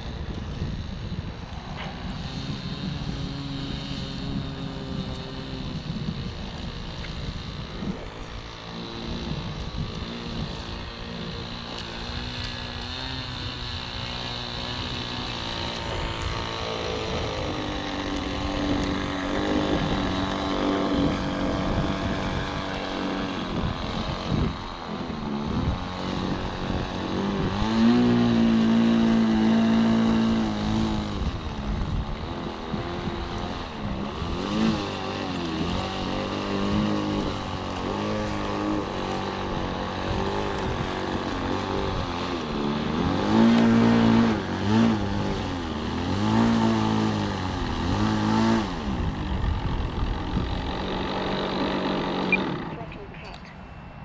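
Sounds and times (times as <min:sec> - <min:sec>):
model plane engine revving: 0:00.0 - 0:53.6.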